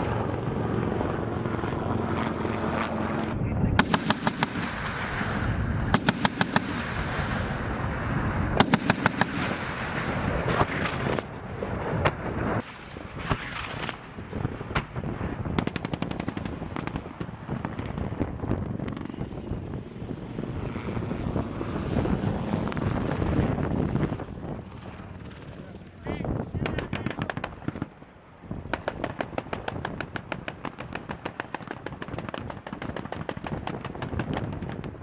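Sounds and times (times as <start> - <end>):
automatic gunfire: 3.8 - 4.8, 6.0 - 7.0, 8.6 - 9.8
single gunshots: 3.8 - 5.1, 8.6 - 10.8.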